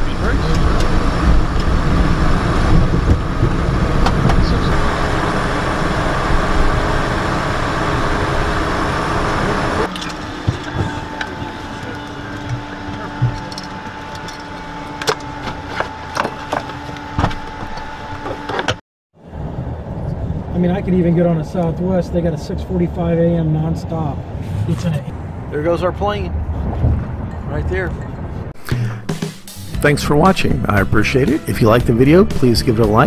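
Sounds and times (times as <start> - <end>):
jet rushing noise on runway: 0.0 - 13.6
steady cockpit hum: 0.0 - 23.2.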